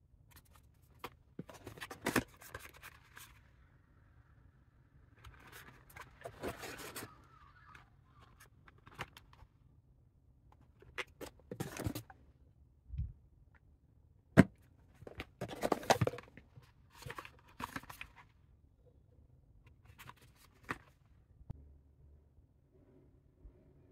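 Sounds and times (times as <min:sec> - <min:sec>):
cardboard boxes rustling and scraping: 0:05.3 - 0:07.3, 0:11.1 - 0:12.2, 0:14.4 - 0:18.2.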